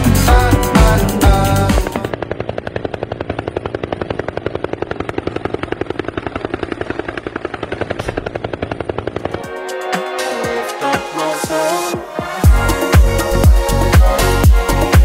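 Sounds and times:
helicopter rotor blades chopping: 0.0s - 15.0s.

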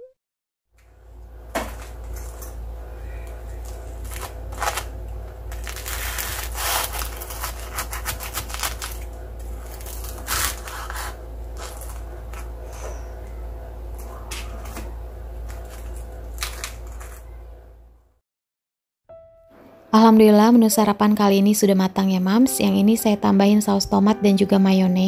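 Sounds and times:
steady low hum: 0.8s - 18.2s
knife cutting crispy fried crust: 5.5s - 9.0s, 9.7s - 12.0s.

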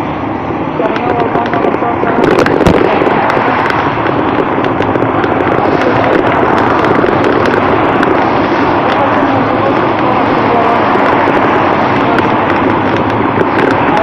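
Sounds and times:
passing car traffic: 0.0s - 14.0s
wind and road noise: 0.0s - 14.0s
crackling: 0.8s - 14.0s.

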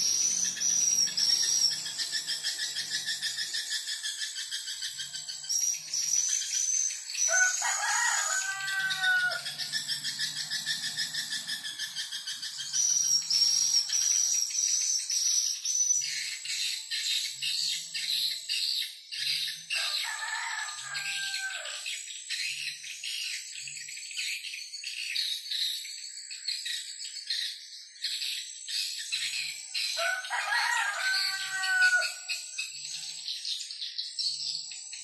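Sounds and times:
high-pitched bird call from speaker: 0.0s - 25.5s.

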